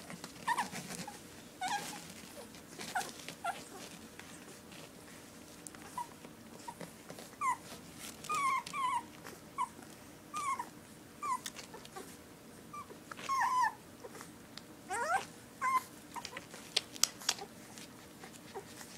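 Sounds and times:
puppies squeaking and whimpering: 0.0 - 4.0, 5.8 - 12.1, 12.7 - 14.3, 14.9 - 16.6
puppy whining: 0.0 - 18.9.

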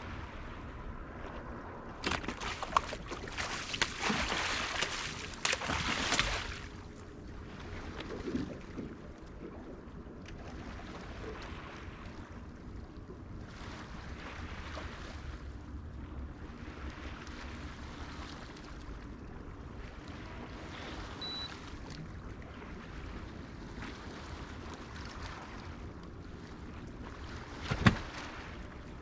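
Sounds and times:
steady low rumble: 0.0 - 14.0
water noise: 0.0 - 29.0
wind: 0.0 - 29.0.

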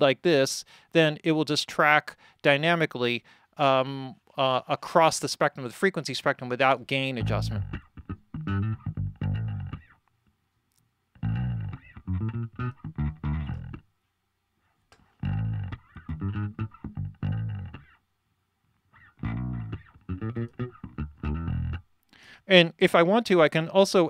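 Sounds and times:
plucked guitar notes: 7.2 - 9.9, 11.2 - 13.8, 15.2 - 17.9, 19.0 - 21.9.

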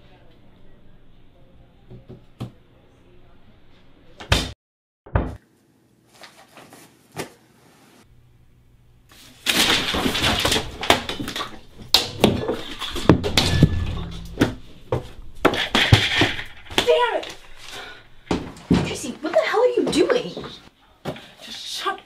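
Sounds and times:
objects clattering and knocking: 9.5 - 20.6.

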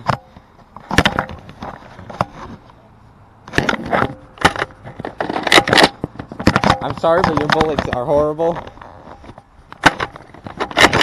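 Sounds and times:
plastic rattling scrape: 3.5 - 11.0.

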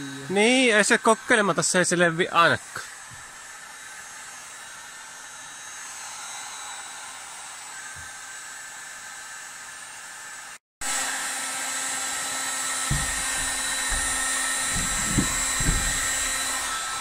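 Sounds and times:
heat gun blowing: 0.0 - 17.0
dull low bumps: 12.9 - 16.7.

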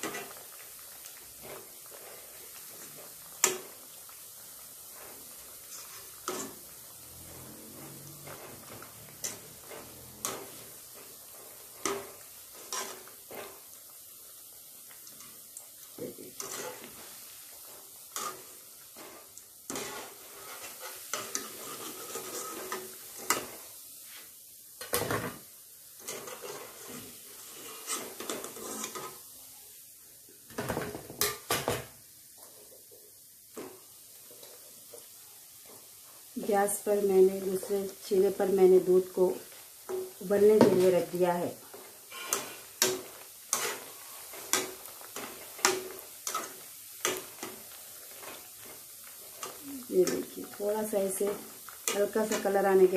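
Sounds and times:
oil sizzling: 0.0 - 52.9
metal spoon scraping metal pan: 5.7 - 6.6, 7.2 - 11.1, 11.8 - 13.6, 16.4 - 17.0, 18.1 - 23.6, 26.0 - 29.2, 41.8 - 47.6.

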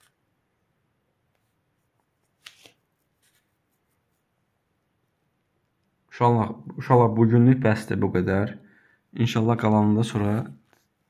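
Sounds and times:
faint scratching: 1.3 - 4.4.

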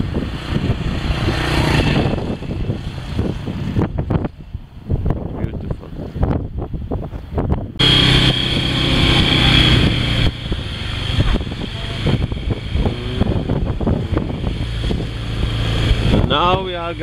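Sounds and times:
wind and road noise: 0.0 - 17.0
vehicle engine running: 7.8 - 17.0.

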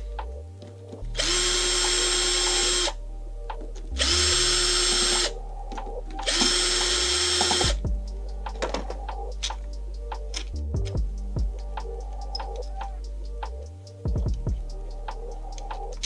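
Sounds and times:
electric drill whining: 1.2 - 3.0, 4.0 - 5.4, 6.2 - 7.8.

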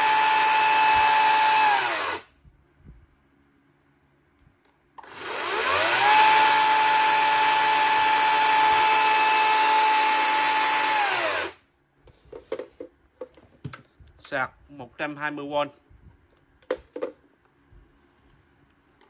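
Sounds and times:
electric chainsaw motor whining: 0.0 - 2.3, 5.0 - 11.6.

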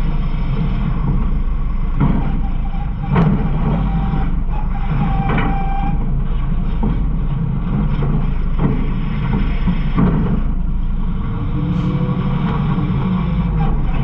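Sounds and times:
garbage truck engine drone: 0.0 - 14.0.

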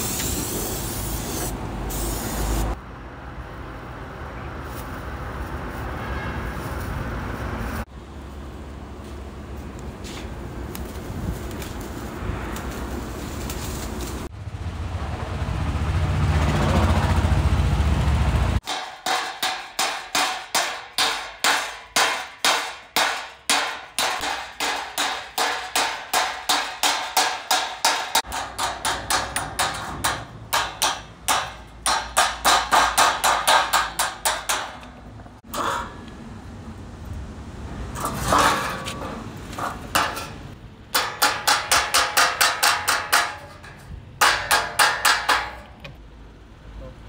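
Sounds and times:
hammer ringing on sheet steel: 18.6 - 34.8, 41.0 - 45.7.

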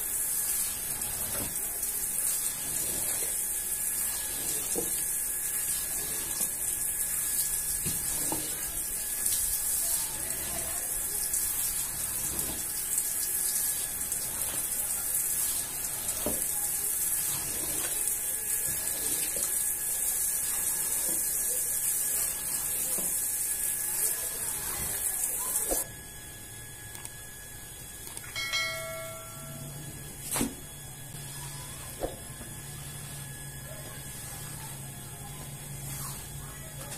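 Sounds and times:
hose spraying water: 0.0 - 25.8
bell chime: 28.3 - 29.9.

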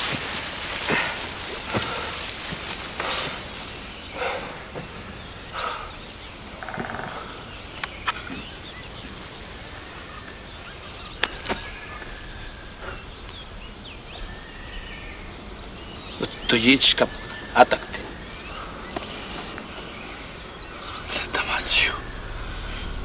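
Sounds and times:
high insect drone: 0.0 - 23.0
sharp clicks: 7.8 - 8.3.

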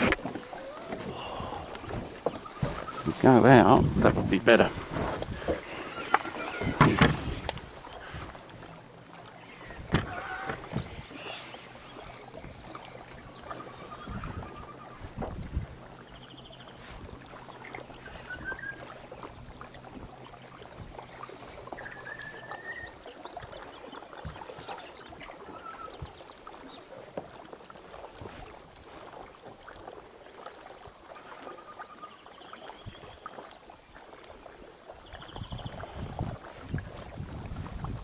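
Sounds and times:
water lapping against boat hull: 0.0 - 38.0.

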